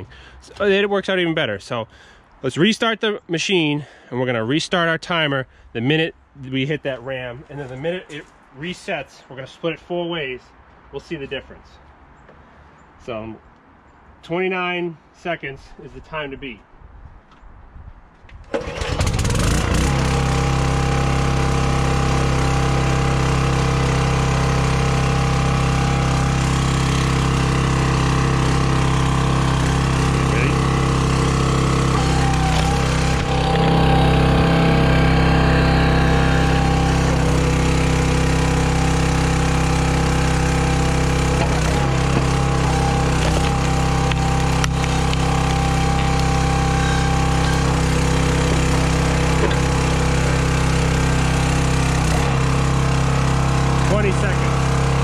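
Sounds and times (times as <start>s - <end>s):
log splitter engine running: 18.5s - 55.0s.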